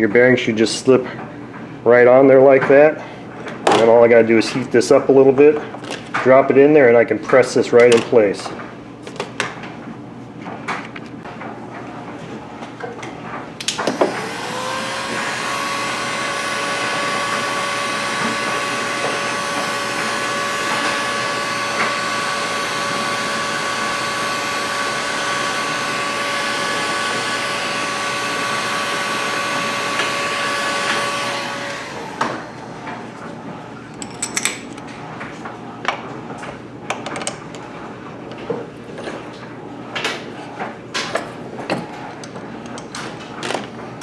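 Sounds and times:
hot-air gun blowing: 0:13.8 - 0:32.6.

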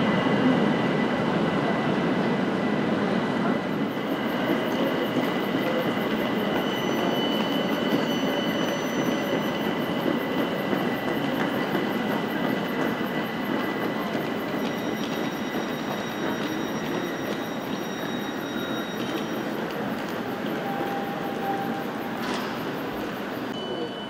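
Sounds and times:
train rumbling: 0:00.0 - 0:23.6.

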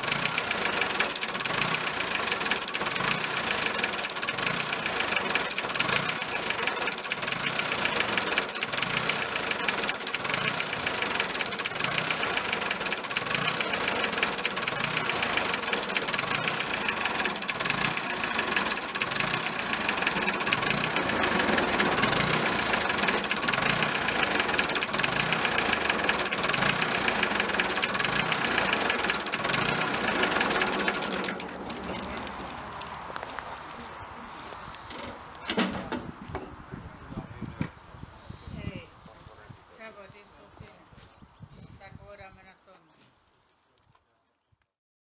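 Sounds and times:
tractor diesel engine idling: 0:00.0 - 0:33.0.

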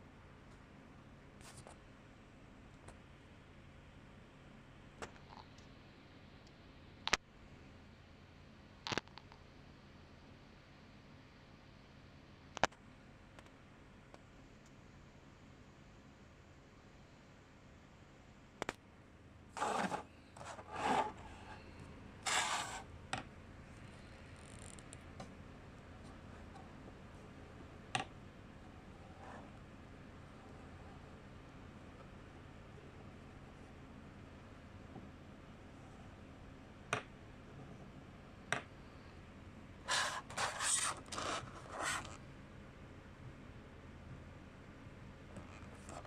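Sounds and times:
hands scraping cardboard: 0:19.6 - 0:21.6, 0:22.2 - 0:22.8, 0:39.9 - 0:42.1.

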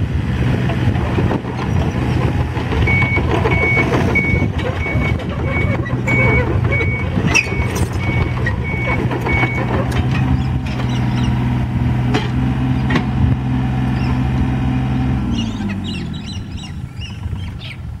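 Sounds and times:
diesel excavator engine running: 0:00.0 - 0:18.0
machine clanks: 0:01.0 - 0:11.3
travel alarm beep: 0:02.9 - 0:09.7.

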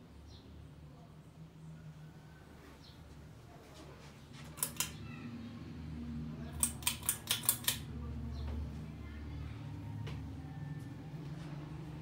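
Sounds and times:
sharp clicks: 0:04.5 - 0:05.0, 0:06.5 - 0:07.9.

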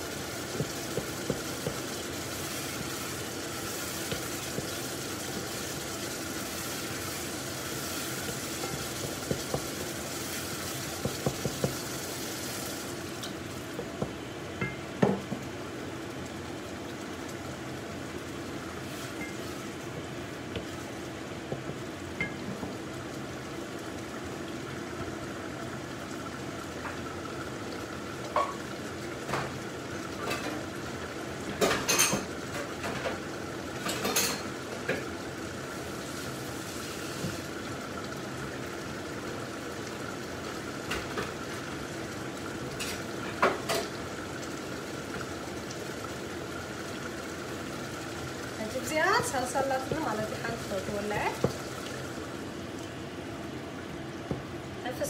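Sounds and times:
pot of water steaming: 0:00.0 - 0:55.0
cookware and utensils clinking: 0:31.6 - 0:33.1, 0:33.8 - 0:35.0.

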